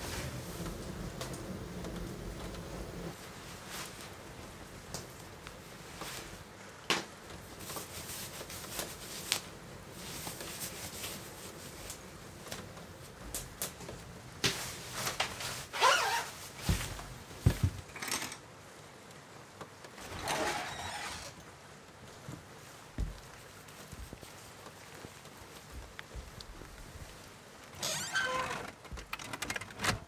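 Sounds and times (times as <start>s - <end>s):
clothing rustling: 0.0s - 18.0s, 19.4s - 30.0s
zipper: 15.7s - 16.4s, 20.0s - 21.4s
footsteps on wooden floor: 16.6s - 17.9s, 22.2s - 27.3s
heavy thumps: 23.0s - 23.4s.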